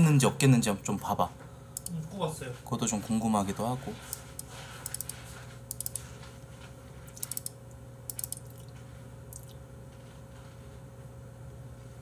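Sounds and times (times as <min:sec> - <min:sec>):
steady low hum: 0:00.0 - 0:12.0
computer mouse clicking: 0:04.8 - 0:06.0, 0:07.1 - 0:08.5.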